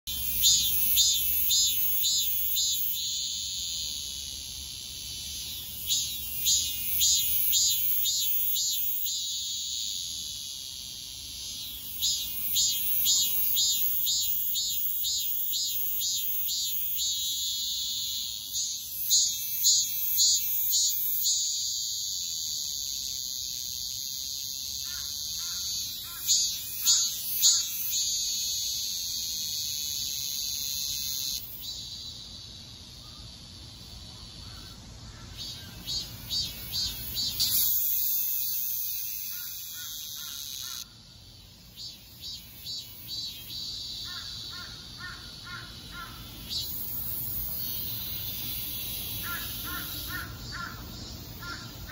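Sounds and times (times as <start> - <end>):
cicada buzzing: 0.1 - 51.9.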